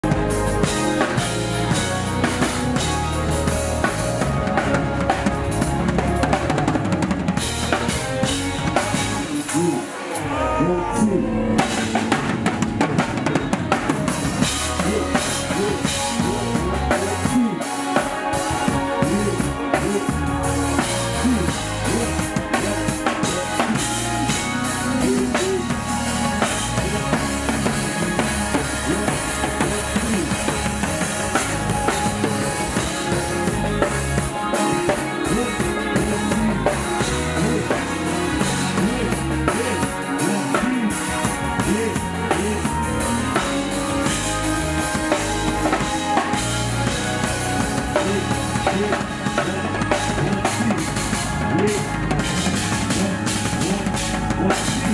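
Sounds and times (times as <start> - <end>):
drum kit: 0.0 - 54.9
live band playing: 0.0 - 54.9.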